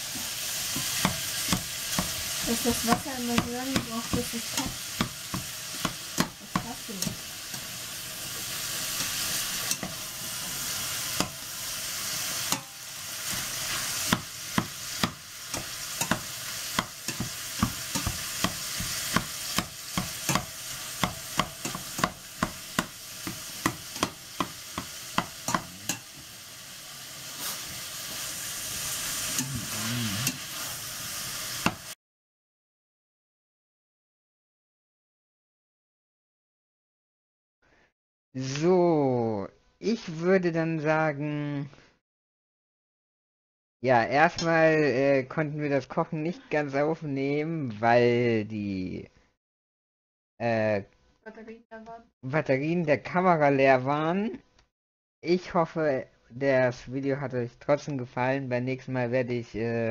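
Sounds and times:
meat sizzling in a pot: 0.0s - 32.0s.

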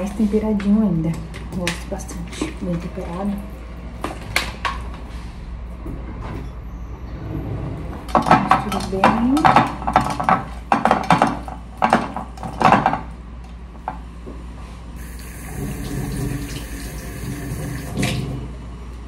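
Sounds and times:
kitchen tap running: 15.0s - 18.4s.

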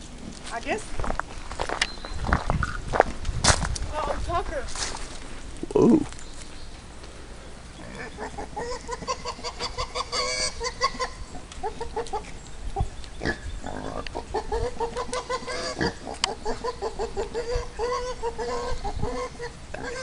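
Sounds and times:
pig grunting: 7.8s - 12.3s, 13.2s - 20.0s.

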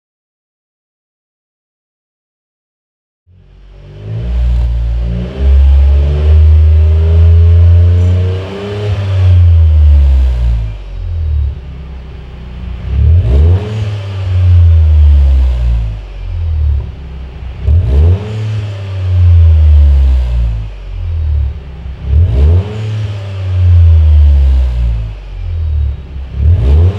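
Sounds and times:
car engine revving: 3.3s - 26.9s.

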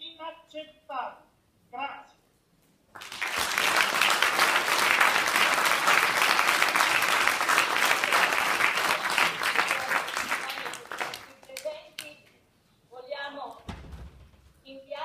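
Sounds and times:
audience applauding: 3.0s - 11.7s.

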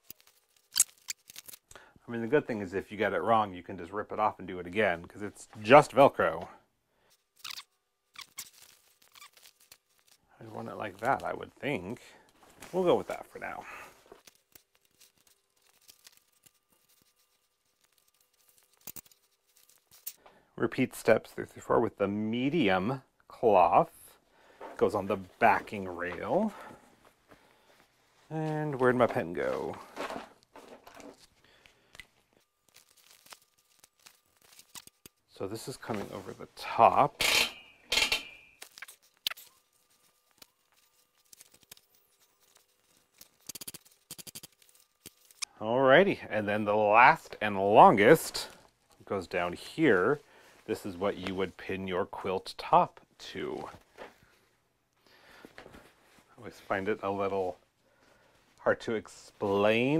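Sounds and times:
faint handling ticks and rustles: 8.2s - 20.4s, 24.5s - 37.0s, 38.7s - 45.5s
hook-and-loop tape crackling: 14.0s - 20.3s.

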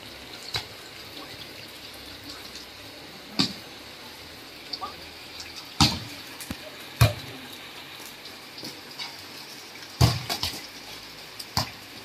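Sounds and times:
heavy rain: 0.0s - 12.0s
volleyball being hit: 5.8s - 6.1s, 7.0s - 7.2s, 10.0s - 10.6s.

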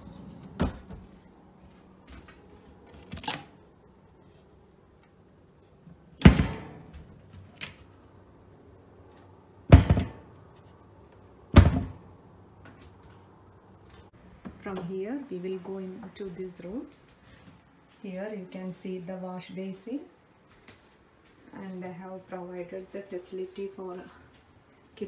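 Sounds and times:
cabinet doors and drawers thunking shut: 0.3s - 1.1s, 6.2s - 6.9s, 9.7s - 10.3s, 11.5s - 12.0s.

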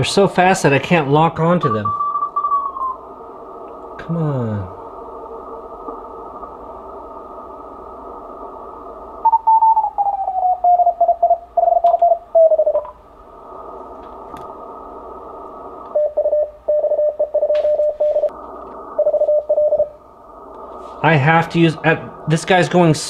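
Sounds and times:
radio band noise hiss: 0.0s - 10.0s, 12.3s - 23.0s
morse code tone: 16.0s - 18.3s, 19.0s - 20.0s.

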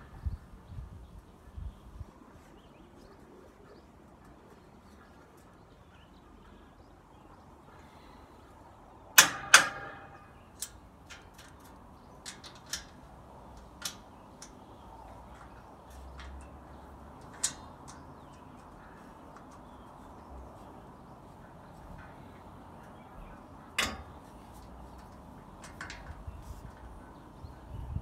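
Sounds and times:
loud sharp metal knocks: 9.2s - 10.4s
light metal clicks: 9.2s - 27.7s.

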